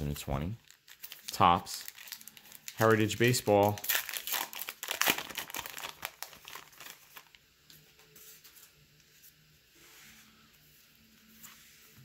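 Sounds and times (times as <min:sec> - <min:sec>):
wrapper crinkling: 0:00.1 - 0:07.4.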